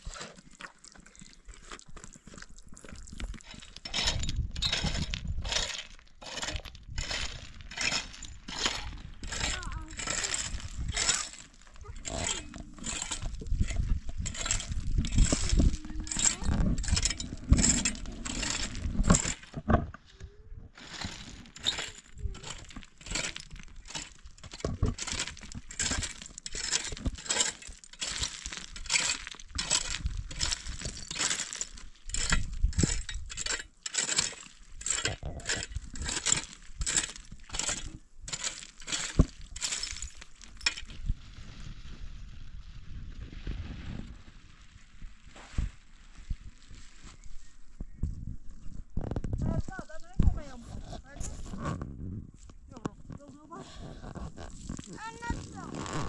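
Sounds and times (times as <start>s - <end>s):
metal rake scraping stony dirt: 0.0s - 0.7s, 3.3s - 19.7s, 20.8s - 41.1s, 53.5s - 56.0s.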